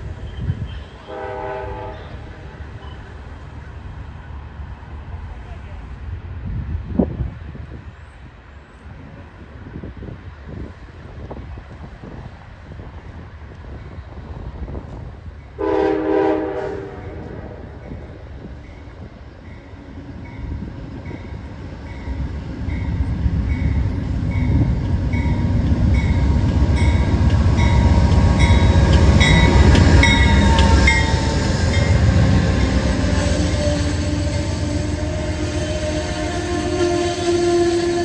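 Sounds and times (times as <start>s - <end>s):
locomotive engine and wheels rumbling: 0.0s - 38.0s
passenger cars rolling past: 17.0s - 38.0s
locomotive bell ringing: 18.6s - 36.5s.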